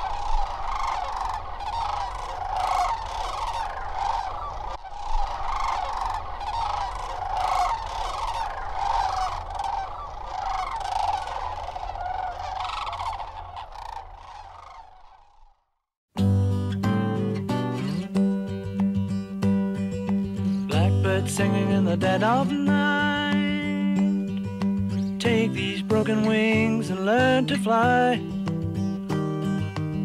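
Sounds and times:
flock of cranes calling: 0:00.0 - 0:15.7.

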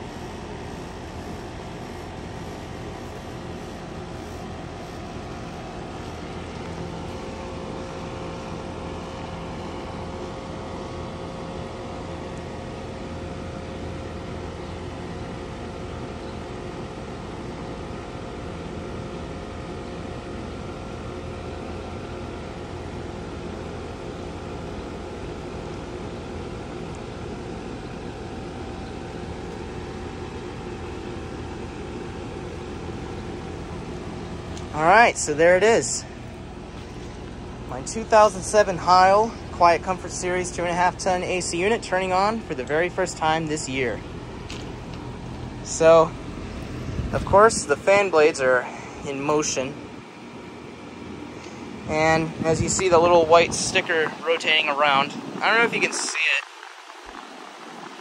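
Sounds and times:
air conditioner compressor hum: 0:00.0 - 0:58.0
fan air buffeting microphone: 0:00.0 - 0:58.0
wind buffeting microphone: 0:44.1 - 0:48.0, 0:51.6 - 0:58.0.

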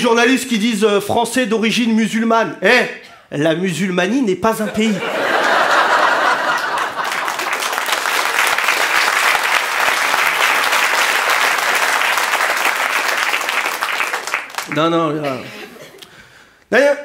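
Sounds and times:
audience applauding: 0:05.2 - 0:15.3.

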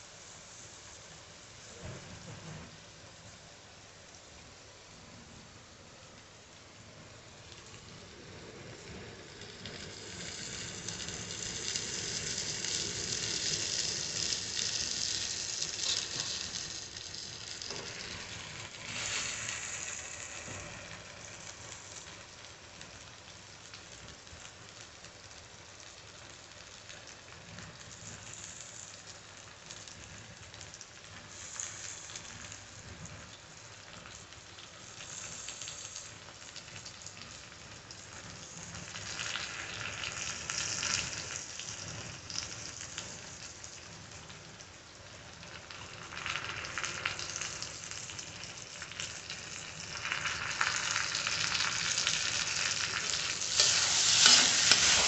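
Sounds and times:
food sizzling in a pan: 0:00.0 - 0:55.0.

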